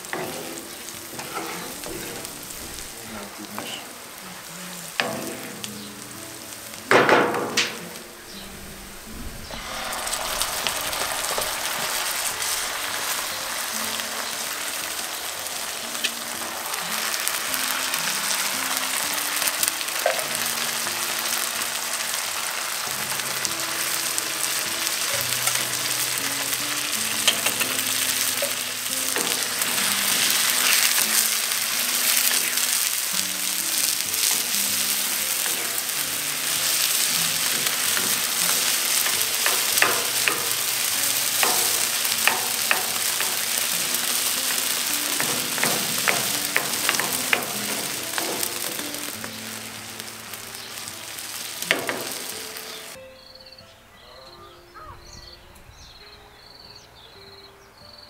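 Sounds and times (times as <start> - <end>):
wooden spatula scraping a pan: 0.0 - 3.0
sauce sizzling in a skillet: 0.0 - 53.0.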